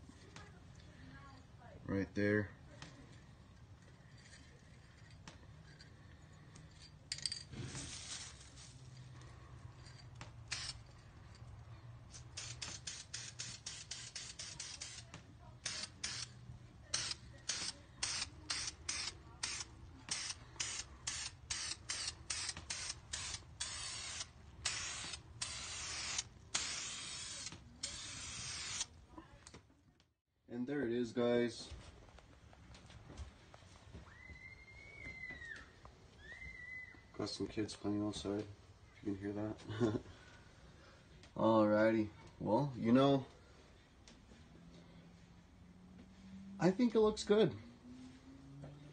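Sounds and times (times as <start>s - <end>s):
aerosol can spraying: 12.1s - 29.0s.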